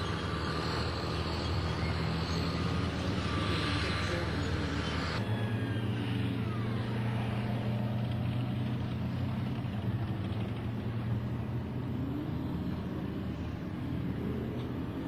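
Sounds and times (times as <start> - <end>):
heavy vehicle engine running: 0.0 - 15.0.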